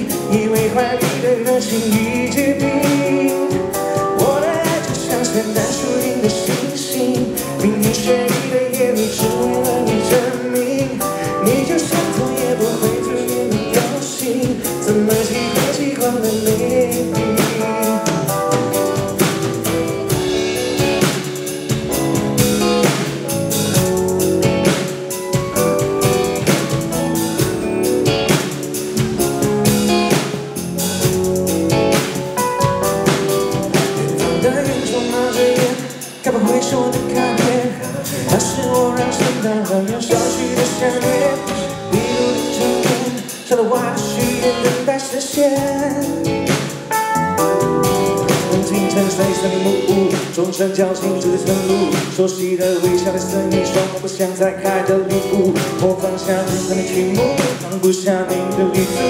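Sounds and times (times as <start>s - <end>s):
man singing: 0.0s - 21.2s, 33.7s - 46.9s, 47.5s - 59.0s
live pop band playing a ballad: 0.0s - 59.0s.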